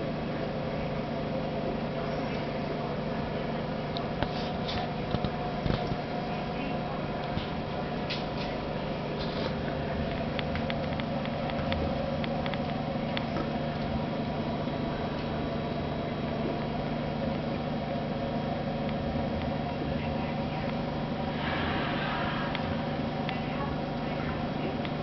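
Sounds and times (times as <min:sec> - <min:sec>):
aquarium pump humming: 0:00.0 - 0:25.0
air bubbling: 0:20.9 - 0:24.0.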